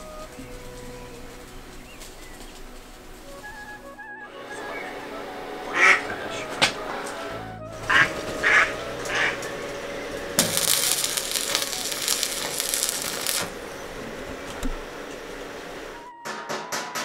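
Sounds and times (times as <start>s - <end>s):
background music: 0.0s - 14.2s
rushing hiss: 0.0s - 16.1s
ducks quacking: 1.8s - 10.4s.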